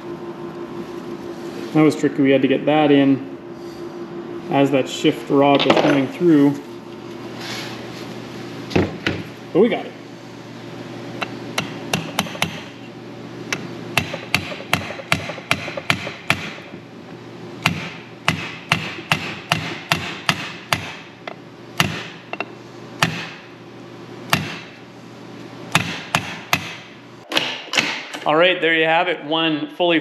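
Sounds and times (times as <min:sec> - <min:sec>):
hammer tapping on metal: 0:11.6 - 0:12.7, 0:13.5 - 0:16.6.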